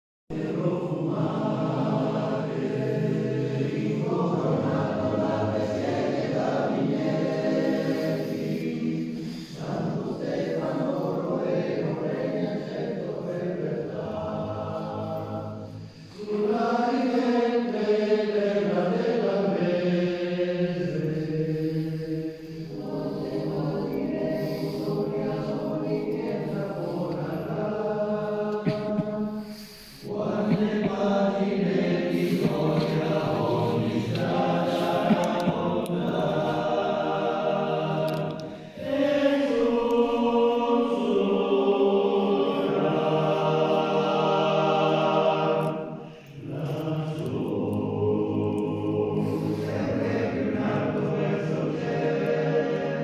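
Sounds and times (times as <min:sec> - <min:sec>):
male choir singing: 0:00.3 - 0:53.0.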